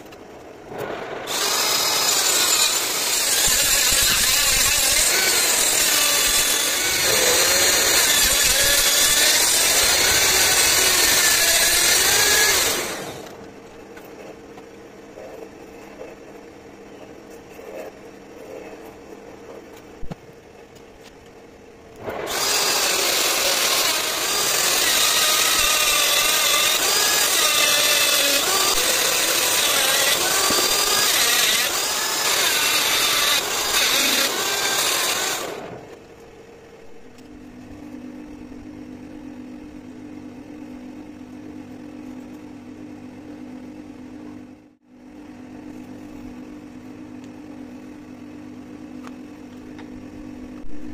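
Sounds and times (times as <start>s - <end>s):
motor humming: 0.0s - 19.0s, 21.6s - 42.3s
grinding stone grinding steel: 1.3s - 13.2s, 22.3s - 35.7s.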